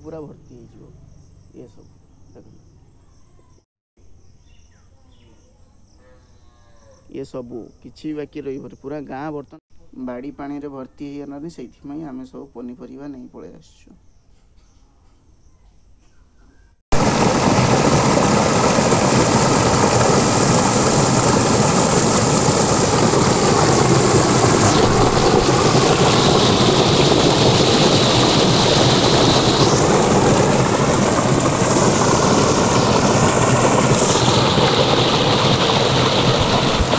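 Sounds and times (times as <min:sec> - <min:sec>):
floodwater gushing: 0:16.9 - 0:36.9.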